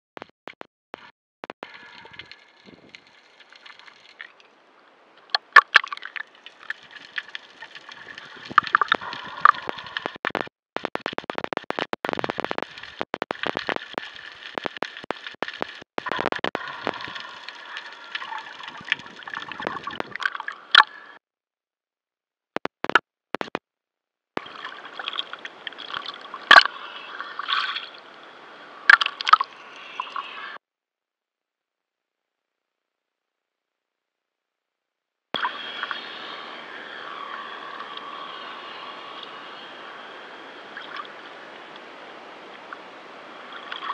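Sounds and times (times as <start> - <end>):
water sloshing and gurgling: 1.6 - 10.4, 11.1 - 21.2, 24.4 - 30.6, 35.4 - 43.9.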